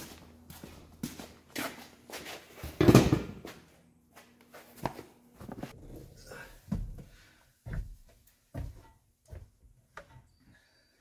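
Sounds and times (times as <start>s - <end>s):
footsteps: 0.0s - 2.8s.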